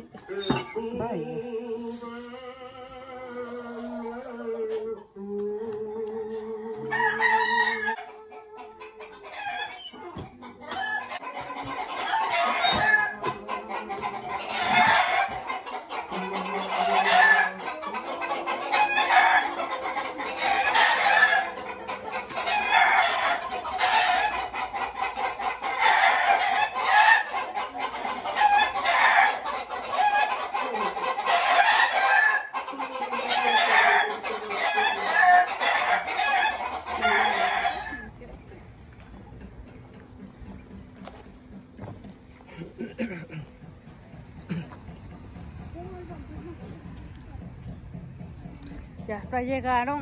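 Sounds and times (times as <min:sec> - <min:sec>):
chickens calling: 0:06.0 - 0:45.6.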